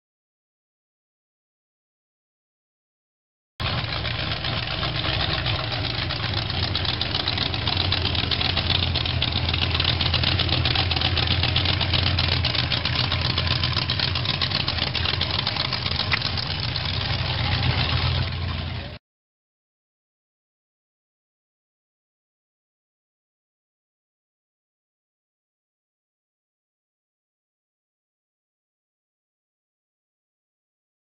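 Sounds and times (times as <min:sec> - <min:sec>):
hot rod engine idling: 0:03.6 - 0:19.0.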